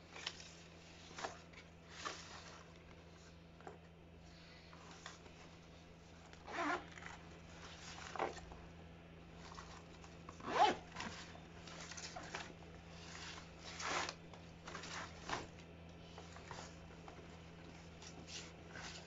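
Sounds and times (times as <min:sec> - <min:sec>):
backpack zipper rasping: 0:06.4 - 0:07.2, 0:10.4 - 0:11.4.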